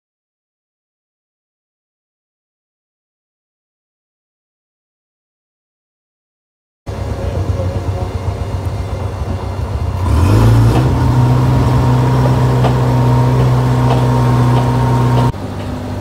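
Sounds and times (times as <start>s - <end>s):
truck engines running: 6.9s - 16.0s.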